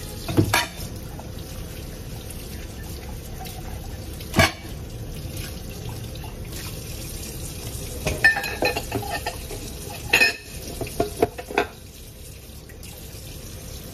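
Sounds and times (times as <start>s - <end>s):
metal pots clinking: 0.3s - 0.9s, 4.4s - 4.8s, 8.0s - 11.8s
tap running into sink: 0.3s - 1.3s.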